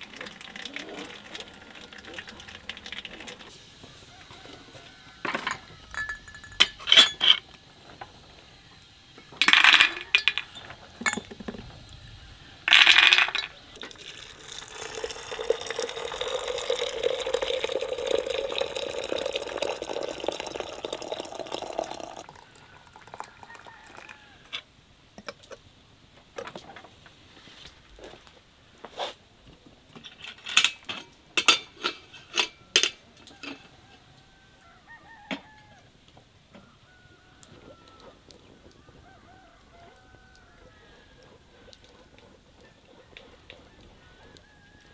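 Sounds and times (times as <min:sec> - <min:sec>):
water pouring into glass teapot: 0:00.0 - 0:03.5, 0:04.8 - 0:07.2, 0:09.4 - 0:11.7, 0:12.7 - 0:24.3
glass and crockery clinking: 0:05.2 - 0:07.4, 0:09.2 - 0:11.6, 0:12.7 - 0:24.1, 0:30.0 - 0:33.7.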